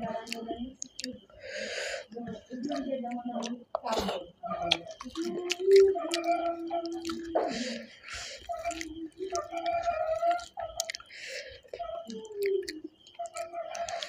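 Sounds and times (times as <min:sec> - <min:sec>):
wet chewing and mouth smacking: 0:00.1 - 0:01.2, 0:02.6 - 0:14.0.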